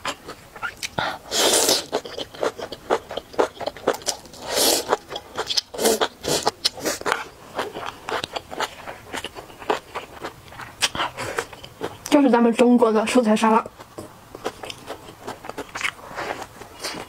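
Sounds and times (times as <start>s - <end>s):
wet chewing: 0.0s - 12.2s, 13.6s - 17.0s
slurping noodles: 1.1s - 2.6s, 3.4s - 7.8s.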